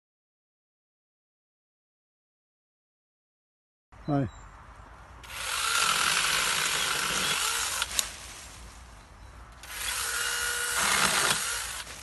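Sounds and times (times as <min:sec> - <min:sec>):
pruning saw whining: 0:05.2 - 0:08.1, 0:09.6 - 0:12.0
saw cutting branch: 0:05.2 - 0:08.4, 0:09.6 - 0:12.0.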